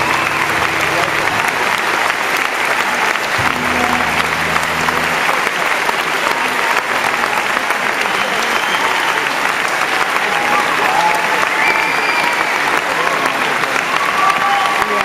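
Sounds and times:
low instrument note: 0.0s - 2.4s, 3.3s - 6.4s
audience applauding: 0.0s - 15.0s.

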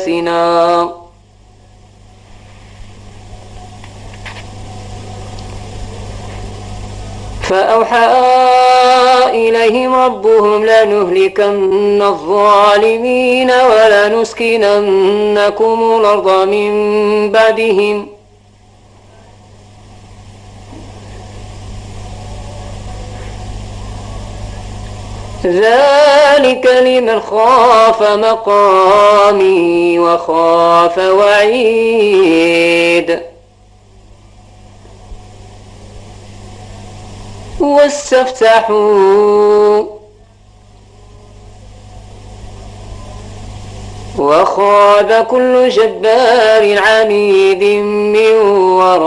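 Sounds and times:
low electrical hum: 0.0s - 49.0s.

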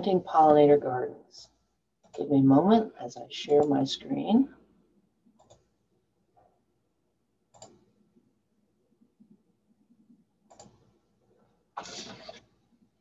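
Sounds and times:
faint small sounds: 4.5s - 13.0s.

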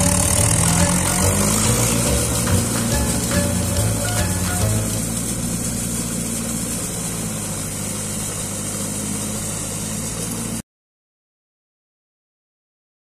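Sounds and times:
diesel tractor engine running: 0.0s - 10.6s.

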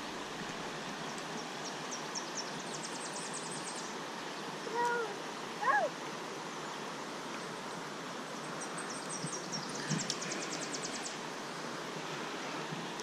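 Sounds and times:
creek water rushing: 0.0s - 13.0s
small bird singing and trilling: 8.6s - 11.2s.

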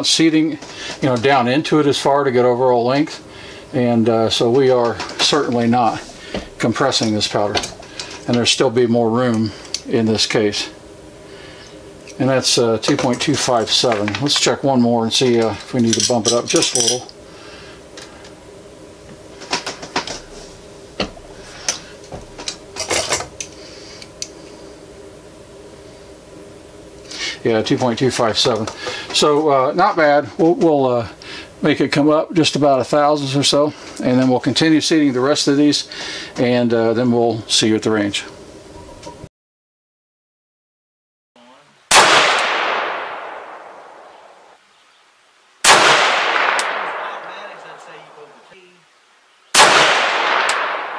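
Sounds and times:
metallic clicks of reloading tools: 15.3s - 17.1s
rifle shots with echo: 41.9s - 44.6s, 45.6s - 48.3s, 49.5s - 50.9s.

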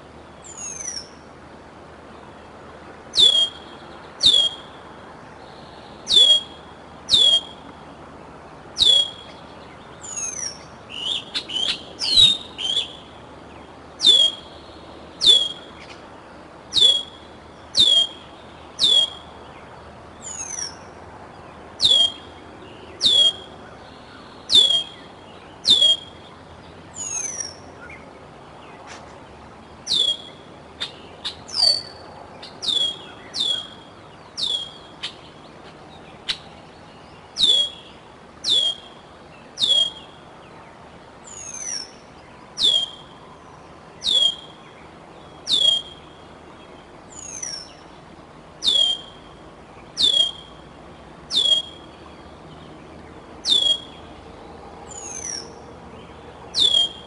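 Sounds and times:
higher slurred bird calls: 0.0s - 1.3s, 3.1s - 7.9s, 8.8s - 13.3s, 13.9s - 16.0s, 16.6s - 19.5s, 20.2s - 21.0s, 21.8s - 28.1s, 29.8s - 36.6s, 37.2s - 40.4s, 41.2s - 43.3s, 44.0s - 46.5s, 48.6s - 52.1s, 53.4s - 54.1s, 54.9s - 55.6s, 56.5s - 57.0s
eagle food-begging whistles: 3.2s - 3.6s, 4.2s - 4.7s, 6.1s - 7.6s, 8.8s - 9.3s, 14.0s - 14.5s, 15.2s - 15.7s, 16.8s - 17.2s, 17.8s - 18.2s, 18.8s - 19.2s, 21.8s - 22.2s, 23.0s - 23.4s, 24.5s - 24.9s, 25.7s - 26.1s, 29.9s - 30.4s, 32.6s - 33.8s, 37.4s - 37.8s, 38.5s - 38.9s, 39.6s - 40.0s, 42.6s - 43.0s, 44.0s - 44.5s, 45.5s - 46.0s, 48.6s - 49.2s, 50.0s - 50.5s, 51.3s - 51.8s, 53.5s - 53.9s, 56.6s - 57.0s.

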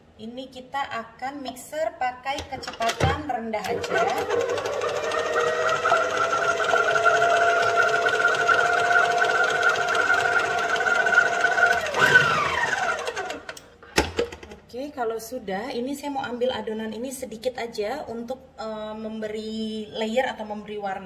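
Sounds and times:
stand mixer motor whining: 3.7s - 13.6s.

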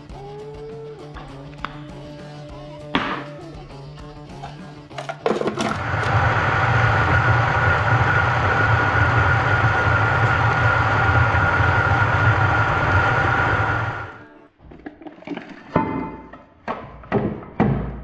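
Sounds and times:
food processor clicks: 5.3s - 6.3s
food processor running: 5.3s - 14.2s.

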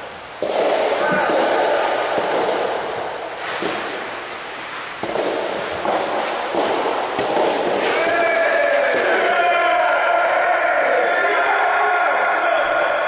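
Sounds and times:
rackets striking ball: 0.0s - 9.4s.

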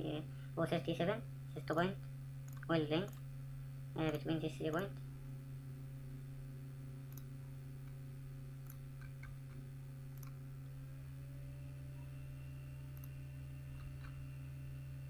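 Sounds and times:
low electrical hum: 0.0s - 15.0s
computer mouse clicks: 2.5s - 3.2s, 7.1s - 7.3s, 8.6s - 10.4s, 12.9s - 13.2s.

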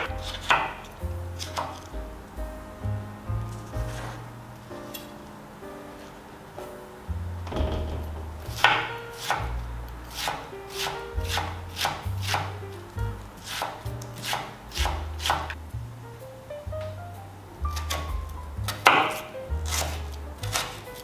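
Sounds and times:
knife dicing on wooden board: 18.7s - 21.0s.

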